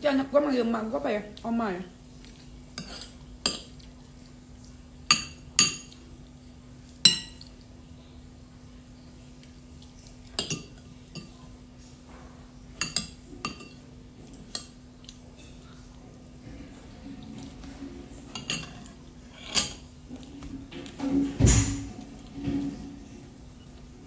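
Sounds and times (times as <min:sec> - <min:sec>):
cutlery clinking on a plate: 0:10.4 - 0:11.4, 0:12.8 - 0:14.8, 0:18.3 - 0:19.9.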